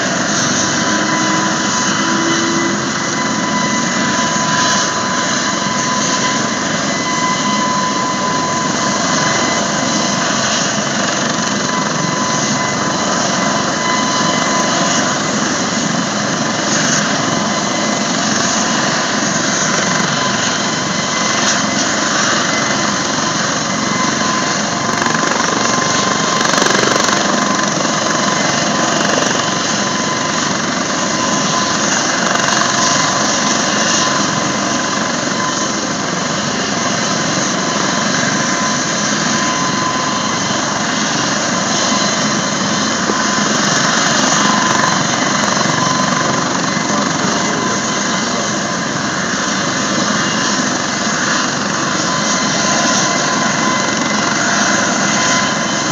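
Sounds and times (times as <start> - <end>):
helicopter turbine whine: 0.0 - 55.9
rotor and exhaust rush: 23.8 - 30.5.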